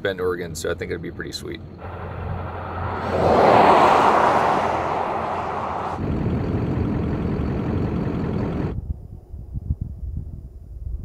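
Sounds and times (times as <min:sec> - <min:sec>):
vehicle passing by: 0:01.8 - 0:06.2.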